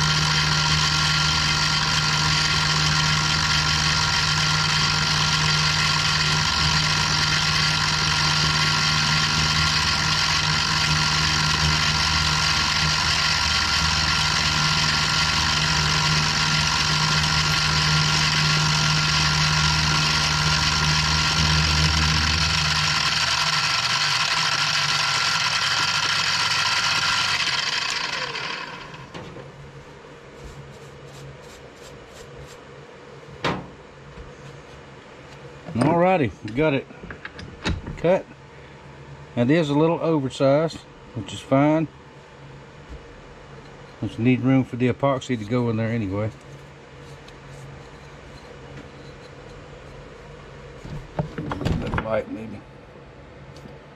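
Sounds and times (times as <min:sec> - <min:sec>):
motor winding down: 0:00.0 - 0:29.2
milling machine whining: 0:00.0 - 0:29.6
low motor hum: 0:00.0 - 0:53.9.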